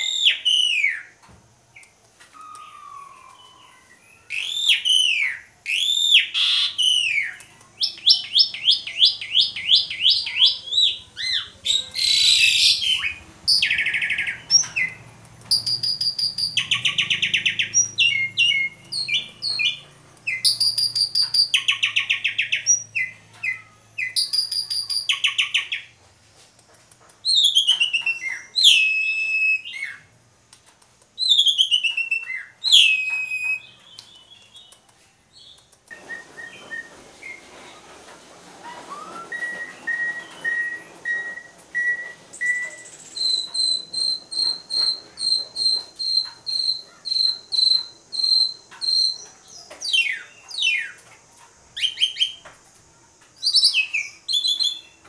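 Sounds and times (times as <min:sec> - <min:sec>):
starling singing: 0:02.4 - 0:26.0, 0:27.2 - 0:30.1, 0:31.2 - 0:37.9, 0:38.6 - 0:51.0
bird falling whistles: 0:38.6 - 0:49.2.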